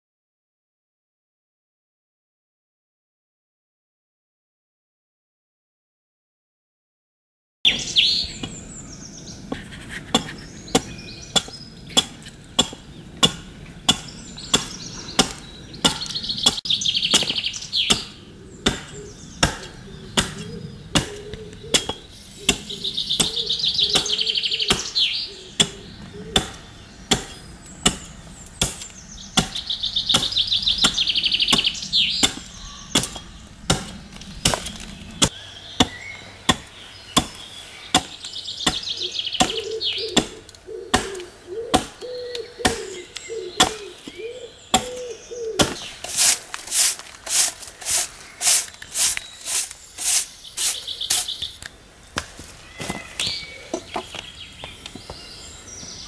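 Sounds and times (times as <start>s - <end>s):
adze chopping wood: 9.5s - 25.0s, 25.6s - 51.5s
bird trilling: 14.0s - 28.0s, 29.1s - 33.5s, 37.2s - 51.6s.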